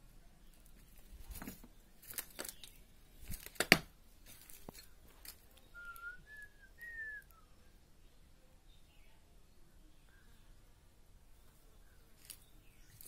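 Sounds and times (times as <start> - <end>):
footsteps crunching on debris: 0.5 - 6.2, 12.2 - 13.0
short whistle-like notes: 5.8 - 7.5.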